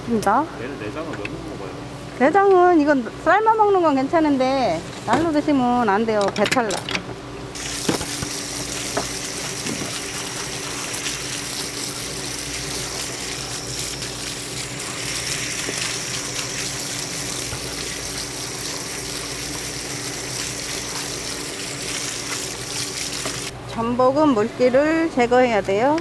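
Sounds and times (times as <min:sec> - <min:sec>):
water spraying from hose nozzle: 0:07.6 - 0:23.5.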